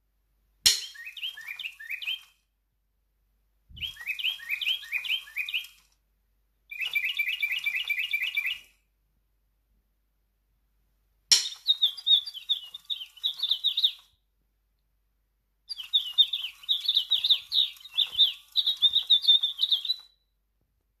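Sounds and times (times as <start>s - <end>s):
toy bird chirps through speaker: 0.9s - 2.4s, 3.8s - 5.8s, 6.7s - 8.7s, 11.3s - 14.2s, 15.7s - 20.2s.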